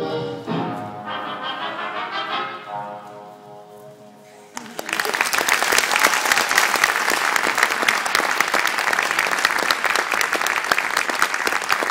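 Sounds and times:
audience applause: 4.5s - 11.9s.

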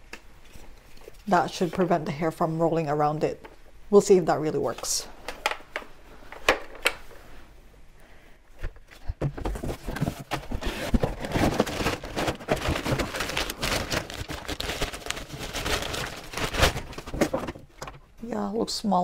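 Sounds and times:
paper and cardboard rustling: 8.9s - 18.0s.

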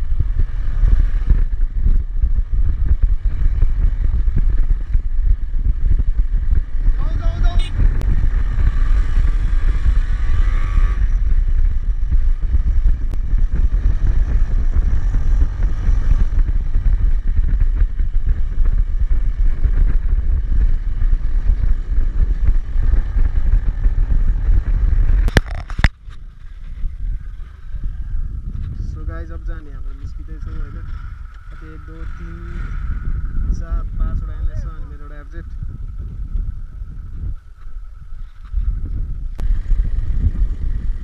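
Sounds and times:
motorcycle engine: 0.0s - 41.0s
wind rushing on helmet: 0.0s - 41.0s.

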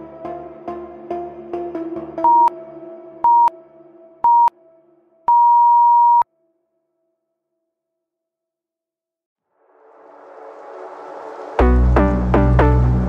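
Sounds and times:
long electronic beep: 2.3s - 2.5s, 3.3s - 3.5s, 4.2s - 4.5s, 5.3s - 6.2s
short electronic beeps: 2.3s - 2.5s, 3.3s - 3.5s, 4.3s - 4.5s, 5.3s - 6.2s
background music with steady beat: 11.4s - 13.0s.

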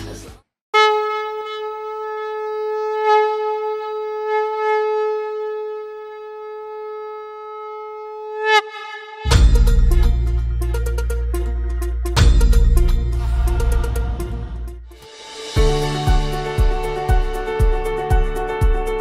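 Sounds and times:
conch shell blown: 0.8s - 12.6s, 14.9s - 19.0s.

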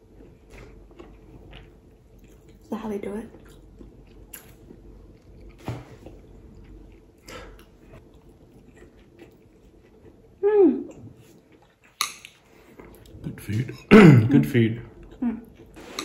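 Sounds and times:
person chewing food: 0.0s - 2.6s, 3.3s - 13.2s.

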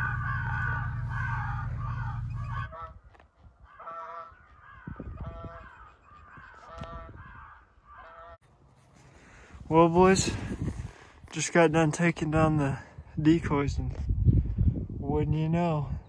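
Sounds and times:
loud low rumble: 0.0s - 2.9s
geese honking: 0.0s - 8.4s.

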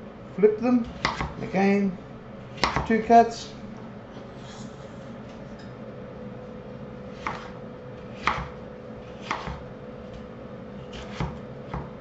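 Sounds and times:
faint steady hum: 0.0s - 12.0s
knife strikes on wooden board: 1.0s - 1.4s, 2.6s - 2.9s, 8.2s - 8.6s, 9.2s - 9.6s.

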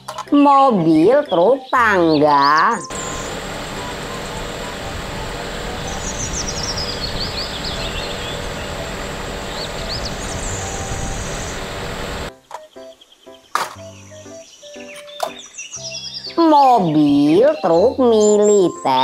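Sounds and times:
small birds chirping: 1.2s - 19.0s
boom lift low rumble: 2.9s - 12.3s.

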